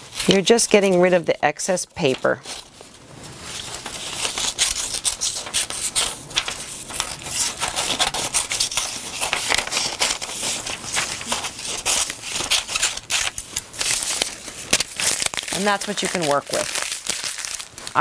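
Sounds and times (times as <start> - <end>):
paper rustling: 0.0 - 18.0
scissors snipping paper: 4.2 - 17.3.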